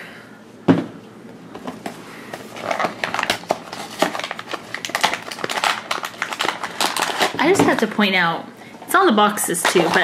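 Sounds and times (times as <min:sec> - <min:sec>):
cardboard box crackling and rustling: 0:02.5 - 0:07.8.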